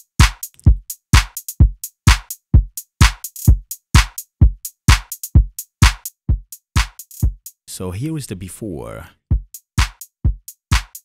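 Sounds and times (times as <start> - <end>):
deep kick drum: 0.2 - 0.9, 5.4 - 6.5, 9.3 - 10.9.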